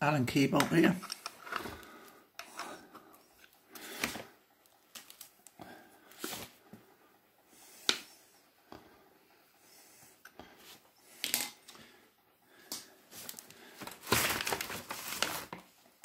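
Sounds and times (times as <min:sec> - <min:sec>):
small clicks and scrapes: 0:01.0 - 0:06.5.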